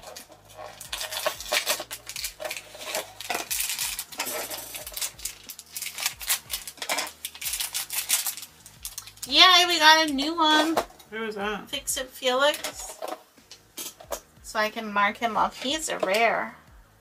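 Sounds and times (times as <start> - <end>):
plastic bag crinkling and crackling: 0.0 - 9.5.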